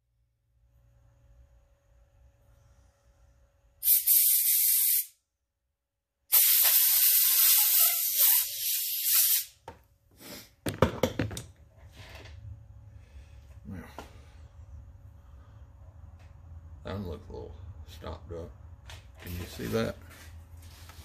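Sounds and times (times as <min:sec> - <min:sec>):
compressed air blow gun hissing: 0:03.8 - 0:05.1, 0:06.3 - 0:09.5.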